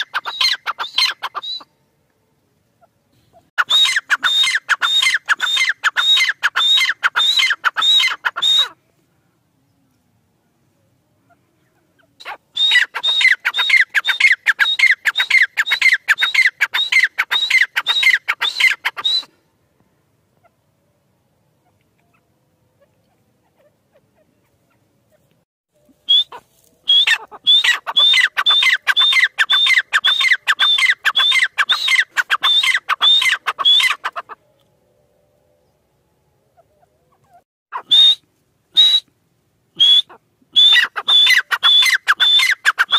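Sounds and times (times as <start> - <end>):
francolin calling: 0.0 - 1.9, 2.8 - 8.8, 11.2 - 19.4, 25.8 - 34.7, 39.8 - 42.9.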